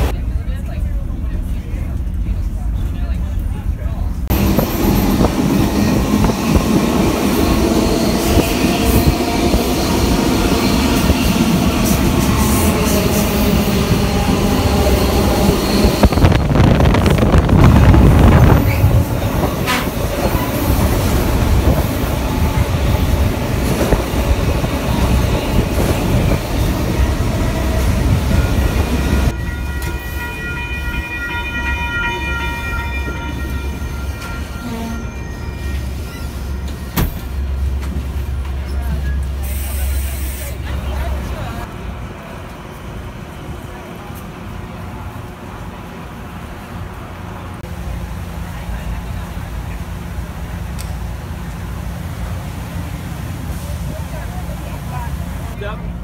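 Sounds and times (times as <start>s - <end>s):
train wheels rumbling and rattling: 0.0s - 31.2s, 32.3s - 56.0s
high-pitched train squeal: 4.6s - 17.3s, 26.6s - 37.4s.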